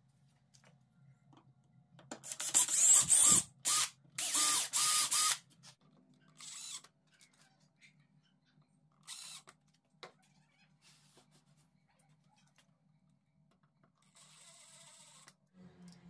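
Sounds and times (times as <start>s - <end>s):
cordless drill whining: 2.3s - 5.4s, 6.4s - 6.8s
cordless driver whirring: 2.3s - 5.4s, 6.4s - 6.8s.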